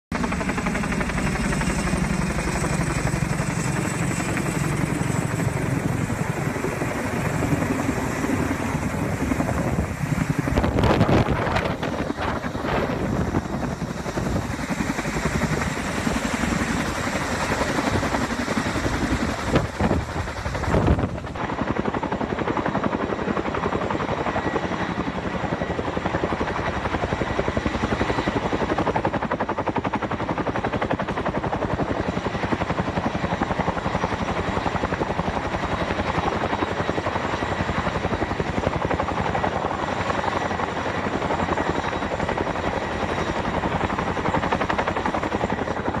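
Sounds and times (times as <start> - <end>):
distant helicopter rotor chop: 0.1 - 46.0.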